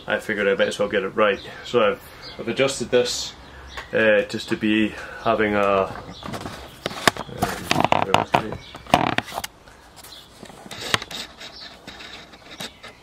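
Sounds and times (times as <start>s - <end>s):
handling clicks and knocks: 5.6s - 9.6s.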